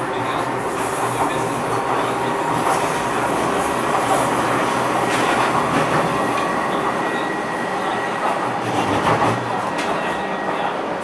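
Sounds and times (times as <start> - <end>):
train rolling noise: 0.0 - 11.0.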